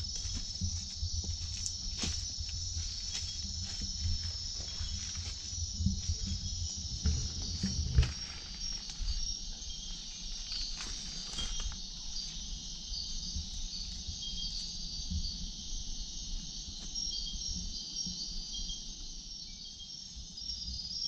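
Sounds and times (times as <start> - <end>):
low rumble: 0.0 - 9.2
insects shrilling: 0.0 - 14.6
insect chirps: 0.0 - 21.0.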